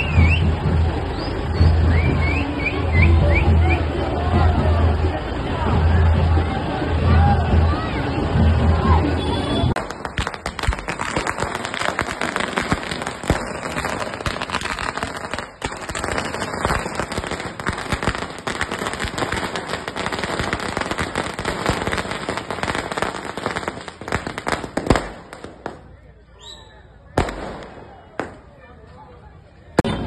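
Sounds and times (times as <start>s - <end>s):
firecrackers crackling: 7.7s - 26.3s, 27.0s - 30.0s
firecracker bangs: 9.7s - 26.0s, 27.2s - 28.6s, 29.8s - 30.0s.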